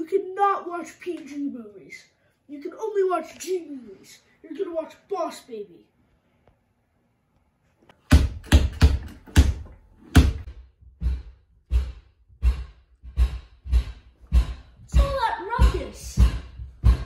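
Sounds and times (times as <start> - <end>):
heavy thuds: 8.1 - 17.0.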